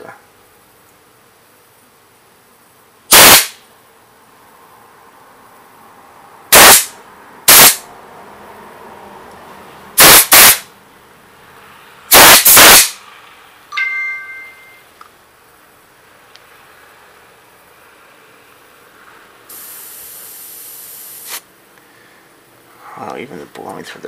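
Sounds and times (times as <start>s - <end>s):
compressed-air blow gun blasts: 3.1s - 3.6s, 6.5s - 7.9s, 10.0s - 10.7s, 12.1s - 13.0s, 19.5s - 21.5s.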